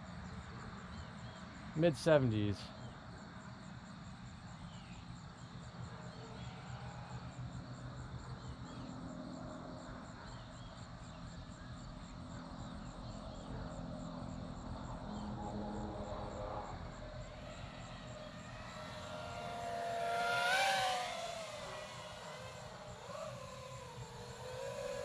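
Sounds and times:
insect chirping: 0.1 - 2.1, 2.7 - 25.0
drone motors humming: 10.9 - 25.0.

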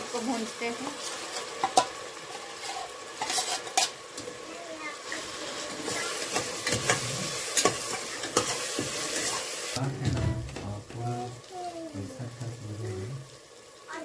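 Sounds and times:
paste sizzling in hot oil: 0.0 - 10.0, 10.6 - 14.0
spoon scraping and knocking pot: 1.3 - 4.0, 6.3 - 9.4.

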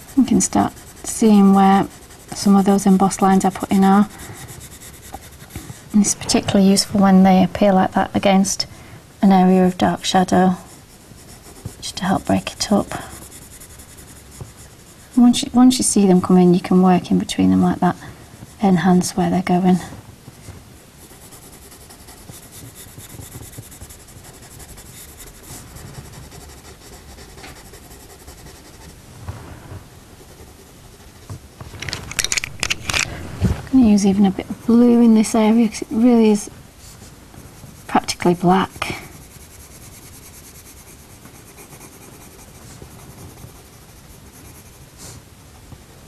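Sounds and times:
pencil scratching on paper: 0.0 - 8.4, 9.2 - 19.6, 20.3 - 29.0, 30.1 - 31.5, 37.5 - 45.2.

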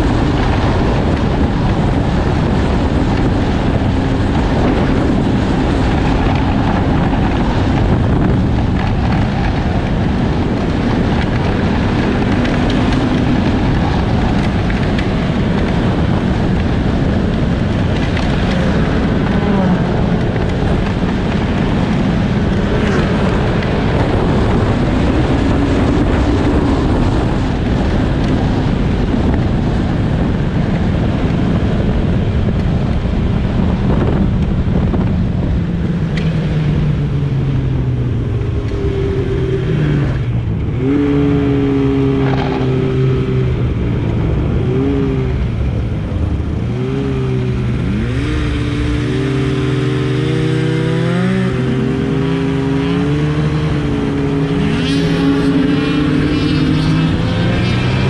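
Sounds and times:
snowmobile engine running: 0.0 - 58.0
wind noise on microphone: 0.0 - 58.0.

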